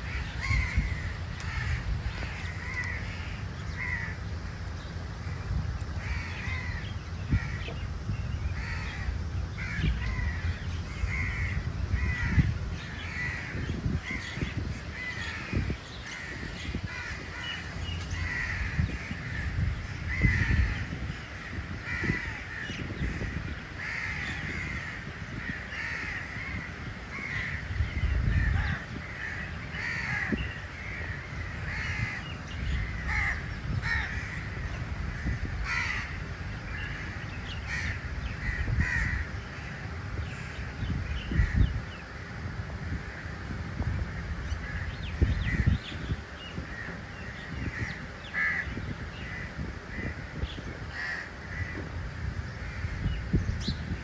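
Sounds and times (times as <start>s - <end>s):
crows cawing: 0.0s - 4.2s, 5.9s - 7.8s, 8.6s - 40.6s, 41.2s - 41.8s, 46.6s - 53.3s.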